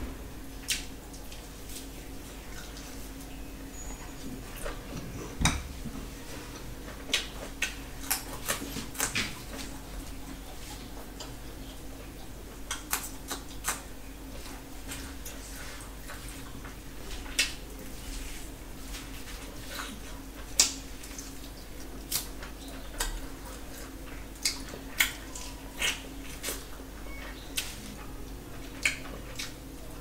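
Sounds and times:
low hum: 0:00.0 - 0:00.7
chewing smacks: 0:19.4 - 0:26.8, 0:27.5 - 0:29.7.

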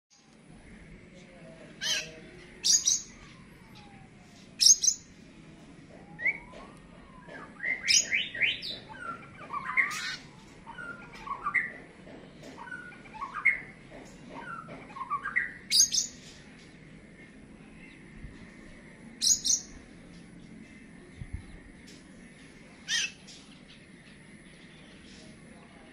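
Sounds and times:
bird harsh calls and whistles: 0:01.8 - 0:05.1, 0:06.1 - 0:16.5, 0:19.2 - 0:19.8, 0:22.8 - 0:25.3.

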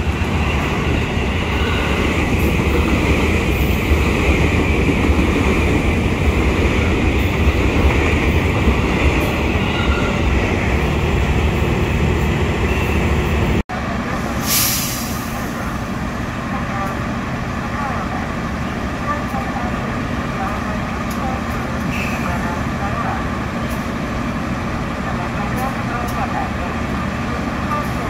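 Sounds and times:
high ringing from train: 0:00.0 - 0:02.9, 0:09.1 - 0:10.9
electric train passing: 0:00.0 - 0:14.4
short hiss: 0:14.4 - 0:15.4.

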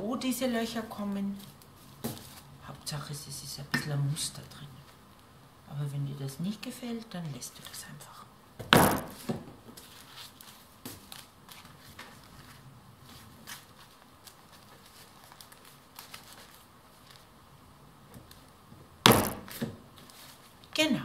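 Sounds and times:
paper bags rustling: 0:09.0 - 0:17.3.

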